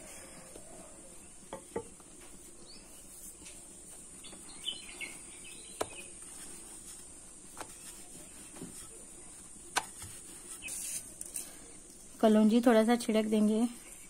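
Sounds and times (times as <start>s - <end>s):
faint bird chirps: 4.2s - 6.2s.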